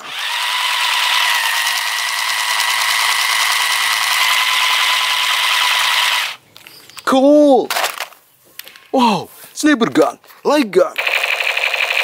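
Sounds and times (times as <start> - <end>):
toy gun electronic buzz and rattle: 0.0 - 6.4, 11.0 - 12.0.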